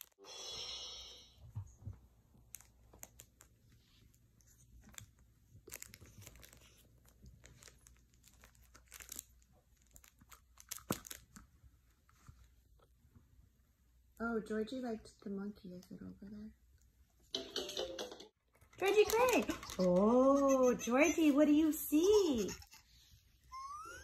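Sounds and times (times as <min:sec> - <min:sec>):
toys crinkling and clicking: 0:02.4 - 0:11.5, 0:18.5 - 0:20.0.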